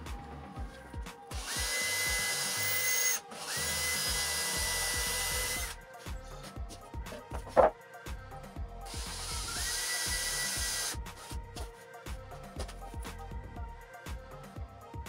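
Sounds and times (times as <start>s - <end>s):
cordless drill boring into wood: 1.4s - 5.8s, 8.9s - 11.0s.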